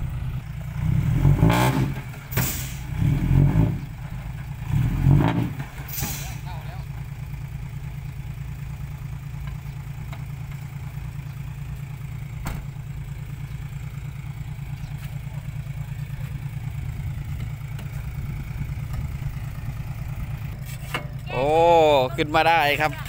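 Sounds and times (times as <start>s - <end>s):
diesel truck engine idling: 0.0s - 23.0s.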